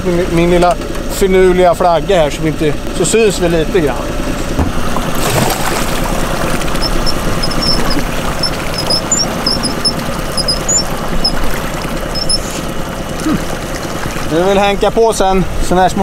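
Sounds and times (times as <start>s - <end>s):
boat engine running: 0.0s - 16.0s
water around hull: 0.0s - 16.0s
short high squeaks: 6.5s - 12.7s.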